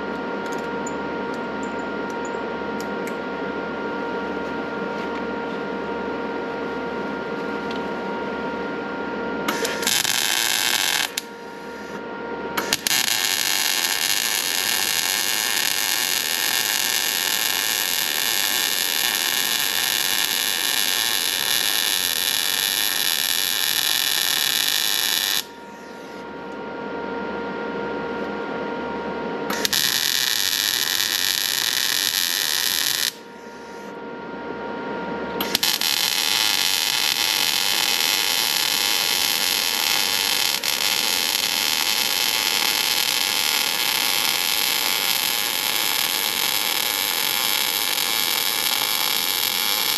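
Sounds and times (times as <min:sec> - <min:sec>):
steady hum: 0:00.0 - 0:49.9
welding arc crackling and hissing: 0:09.5 - 0:12.0, 0:12.6 - 0:25.9, 0:29.5 - 0:33.9, 0:35.4 - 0:49.9.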